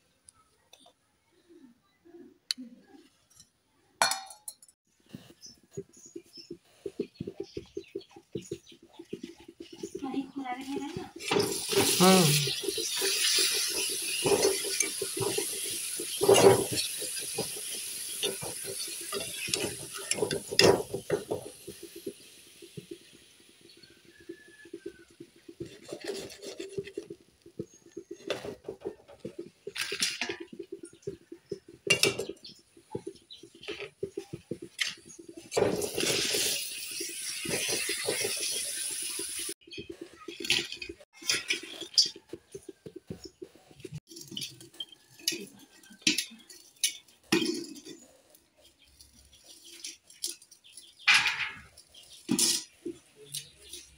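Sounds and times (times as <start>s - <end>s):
spoon scraping a steel pot: 10.7s - 22.0s, 23.8s - 48.0s.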